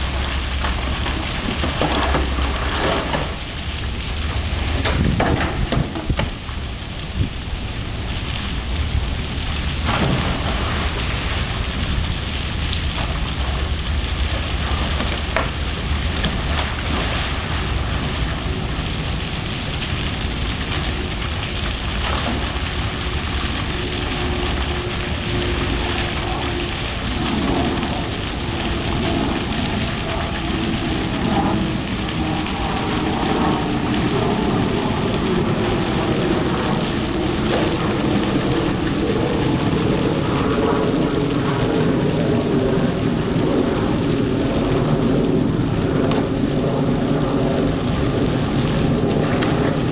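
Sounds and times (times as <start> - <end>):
small waterfall pouring into pool: 0.0 - 49.9
splashing of animal swimming: 9.4 - 41.9.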